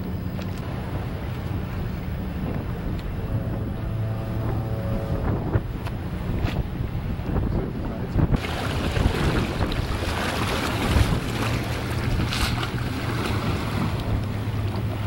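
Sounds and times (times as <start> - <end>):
steady low hum: 0.0 - 8.4
wind buffeting microphone: 0.0 - 15.0
waves splashing on rocks: 8.2 - 15.0.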